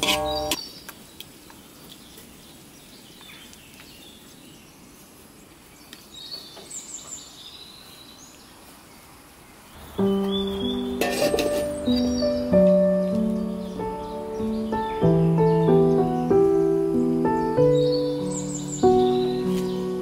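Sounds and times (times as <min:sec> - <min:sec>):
short high bird chirps: 0:00.0 - 0:00.7, 0:09.7 - 0:11.0
outdoor background noise: 0:00.0 - 0:20.0.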